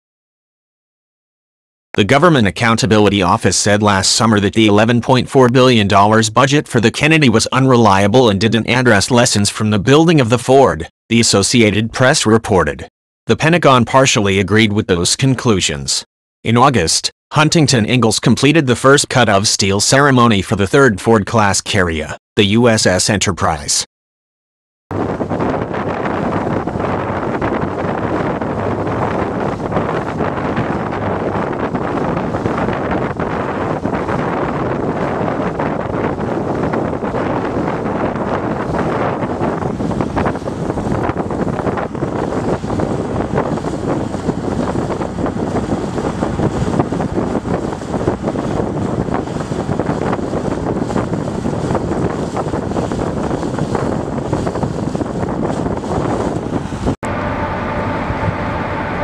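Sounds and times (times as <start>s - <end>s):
wind across microphone: 24.9s - 59.0s
boat engines running: 55.7s - 59.0s
low hum: 56.4s - 59.0s.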